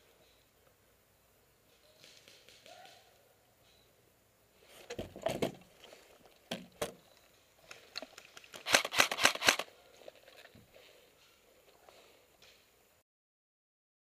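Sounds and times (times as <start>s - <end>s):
airsoft gunfire: 8.6s - 9.7s.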